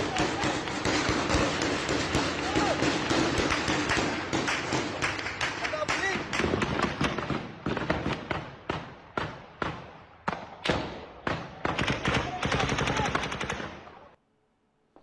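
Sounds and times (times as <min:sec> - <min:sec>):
rapid automatic gunfire: 0:00.0 - 0:09.3, 0:11.6 - 0:13.8.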